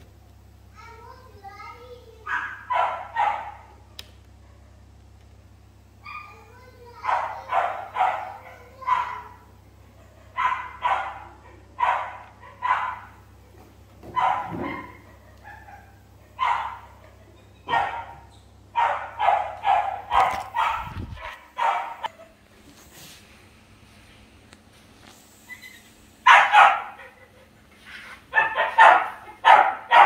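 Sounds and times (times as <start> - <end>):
dog barking: 2.2 - 3.8, 6.0 - 6.4, 7.0 - 13.2, 14.1 - 17.1, 17.7 - 22.2, 26.2 - 27.2, 28.3 - 30.0.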